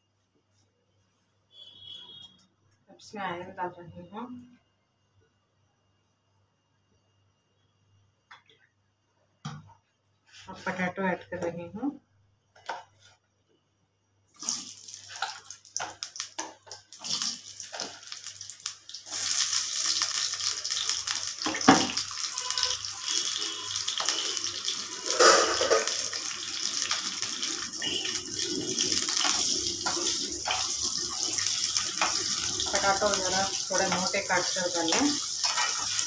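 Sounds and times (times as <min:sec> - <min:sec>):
potatoes sizzling in oil: 0:14.4 - 0:36.0.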